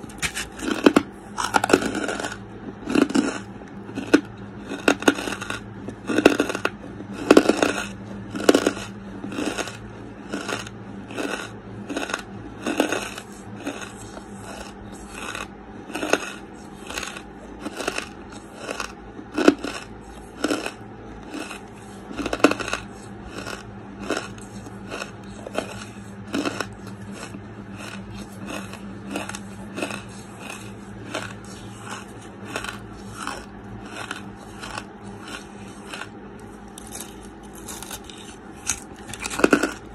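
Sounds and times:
chewing charcoal crunches: 0.0 - 39.9.

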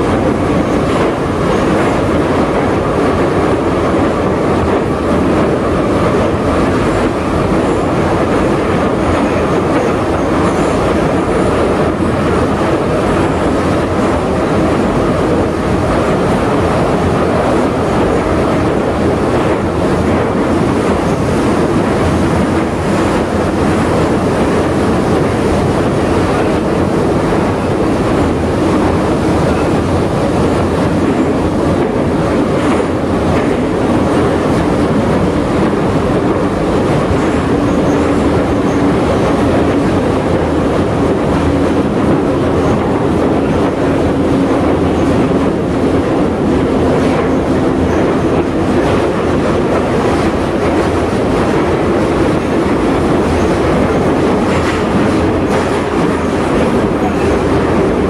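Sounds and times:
clickety-clack of rail joints: 0.0 - 58.0
train wheels rumbling on rail: 0.0 - 58.0.

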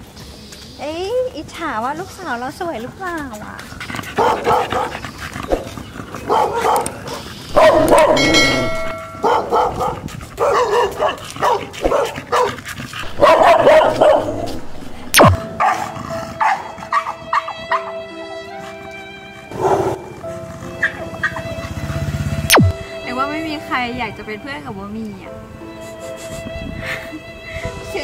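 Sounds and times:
dogs barking: 3.6 - 18.0, 19.5 - 21.7.

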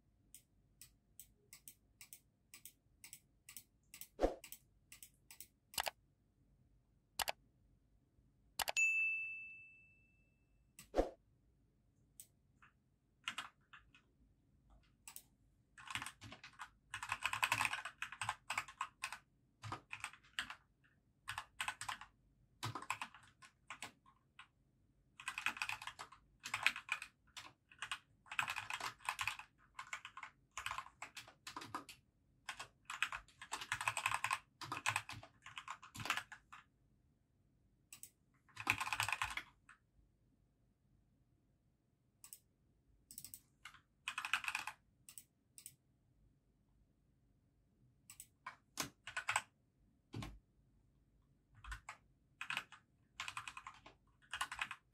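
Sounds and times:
computer keyboard typing: 0.4 - 6.0, 7.2 - 7.4, 13.2 - 14.0, 15.1 - 24.5, 25.2 - 36.7, 37.9 - 39.8, 43.1 - 45.8, 48.1 - 49.5, 51.6 - 54.9.

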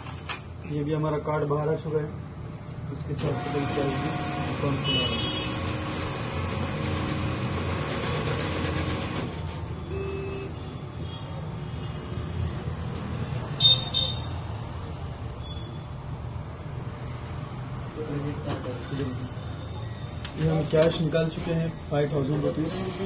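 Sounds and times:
cash dispenser whirring rattle: 3.2 - 9.8, 22.3 - 23.0
short high beeps: 9.8 - 10.8.

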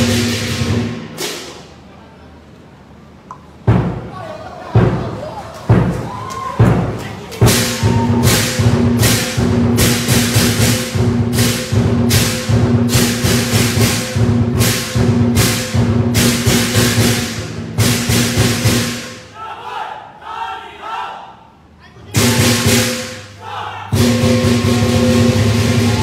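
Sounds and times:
large drum beaten fast: 0.0 - 1.4, 3.6 - 19.2, 22.1 - 23.2, 23.9 - 26.0
gong and cymbal crashes: 0.0 - 1.6, 7.5 - 19.2, 23.9 - 26.0.

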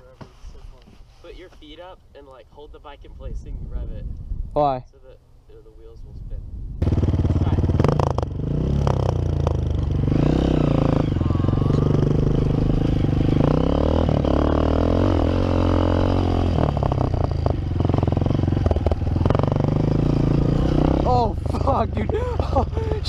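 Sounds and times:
dirt bike engine revving: 6.8 - 23.0.

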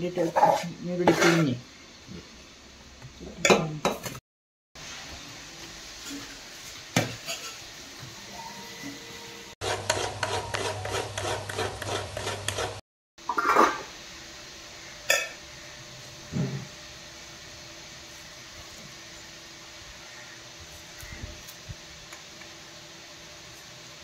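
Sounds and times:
spoon scraping steel bowl: 0.2 - 1.6.

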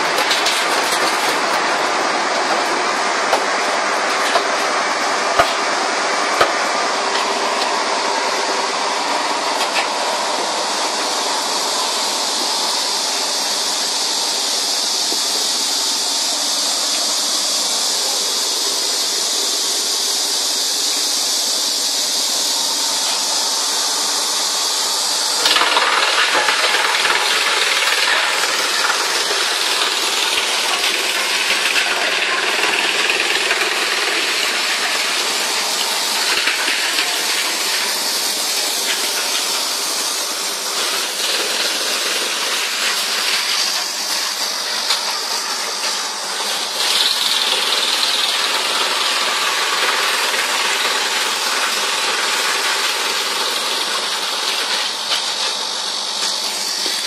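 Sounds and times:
knocks in wood chipper: 0.0 - 7.8
wood chipper running: 0.0 - 57.0.

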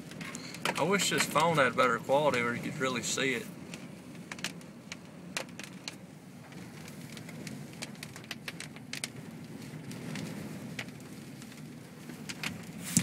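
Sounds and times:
storm wind around truck cab: 0.0 - 13.0.

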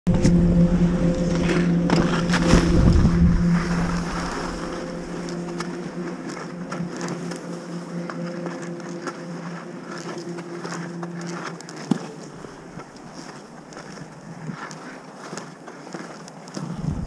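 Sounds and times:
low hum: 0.0 - 14.5
wind on microphone: 0.1 - 7.0, 16.6 - 17.0
skis scraping on snow: 1.2 - 16.8.

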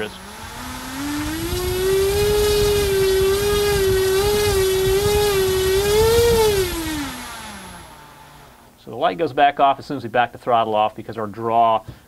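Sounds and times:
electric motor propeller whine: 0.0 - 8.8.

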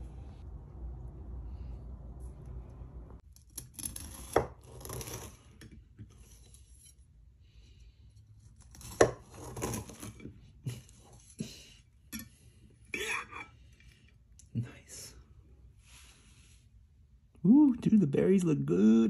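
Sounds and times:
knife crunching through cake: 3.4 - 6.8, 8.4 - 11.6.

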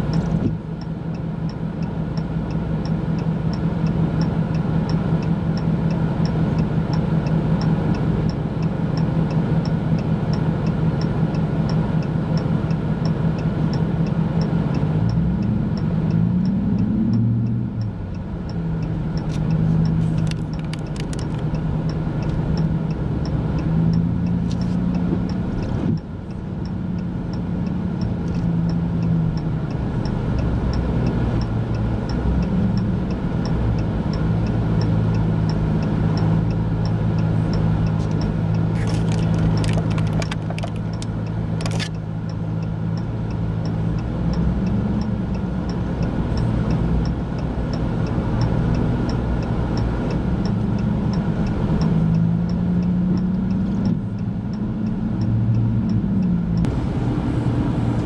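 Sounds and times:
vehicle engine idling: 17.6 - 44.1, 55.8 - 58.0
vehicle passing: 55.3 - 58.0.

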